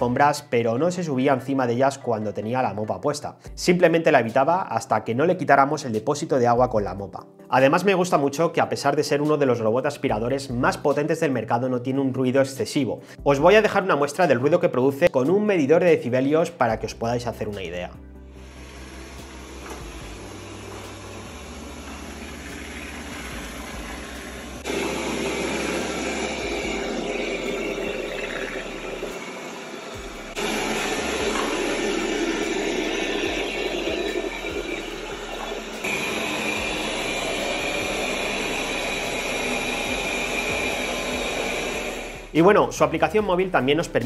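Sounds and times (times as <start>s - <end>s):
robot vacuum suction fan: 18.4s - 42.4s.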